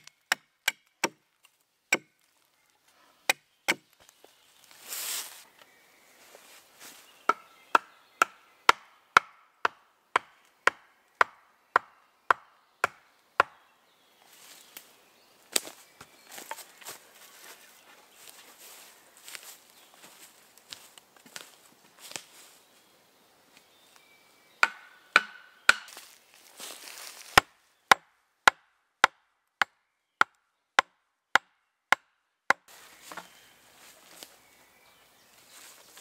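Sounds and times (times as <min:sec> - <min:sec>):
hatchet chopping wood: 0:00.0 - 0:01.2, 0:01.9 - 0:02.2, 0:03.3 - 0:03.9, 0:07.3 - 0:13.6, 0:24.6 - 0:26.0, 0:27.4 - 0:33.3
footsteps in leaf litter: 0:04.0 - 0:05.5, 0:06.2 - 0:07.2, 0:15.5 - 0:22.8, 0:25.9 - 0:27.4, 0:32.7 - 0:34.6, 0:35.2 - 0:36.0.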